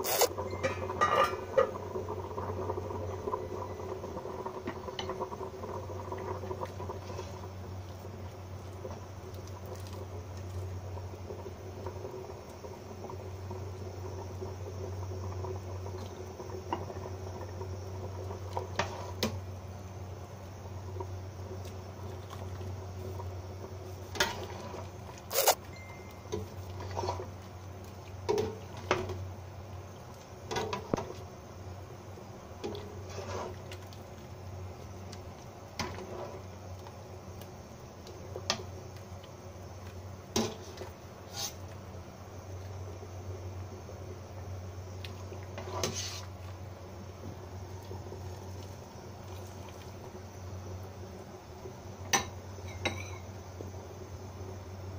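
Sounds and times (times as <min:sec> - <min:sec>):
low steady hum: 0:00.0 - 0:54.9
soup simmering: 0:00.0 - 0:54.9
ladle clinking against pot: 0:00.5 - 0:01.4.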